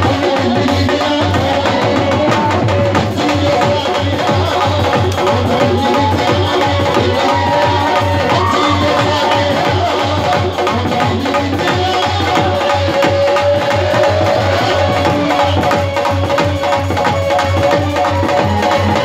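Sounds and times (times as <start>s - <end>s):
dhol drum beating: 0.0s - 19.0s.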